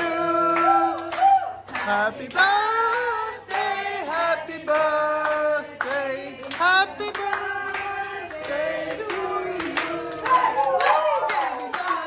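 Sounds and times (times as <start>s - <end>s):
people singing: 0.0s - 12.0s
hand claps: 0.4s - 12.0s.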